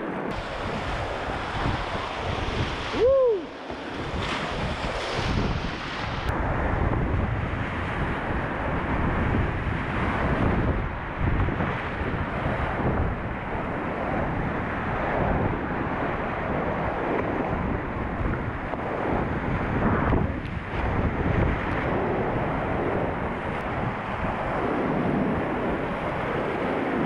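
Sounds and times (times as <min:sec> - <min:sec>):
wind buffeting the microphone: 0:00.0 - 0:27.0
whitewater rapids rushing: 0:00.3 - 0:06.3.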